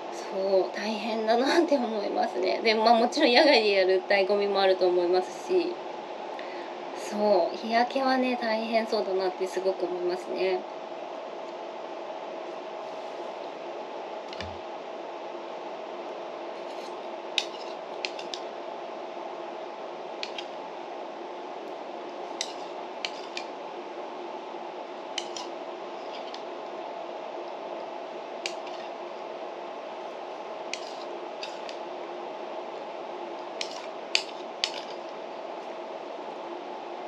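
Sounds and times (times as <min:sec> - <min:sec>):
steady background hum: 0:00.0 - 0:37.0.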